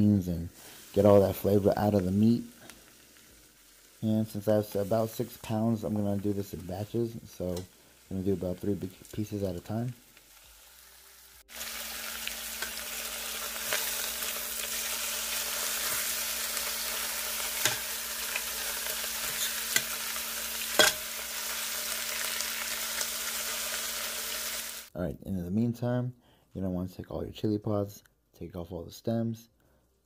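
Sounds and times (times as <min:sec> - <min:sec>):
meat sizzling in oil: 0:00.5 - 0:24.9
metal tongs clicking against pot: 0:17.6 - 0:17.9.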